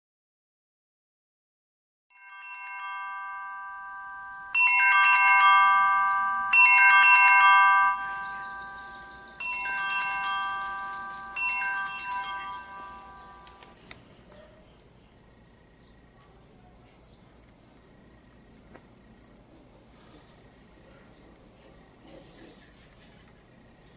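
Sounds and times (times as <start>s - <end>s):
phone alarm marimba melody: 2.2s - 13.7s.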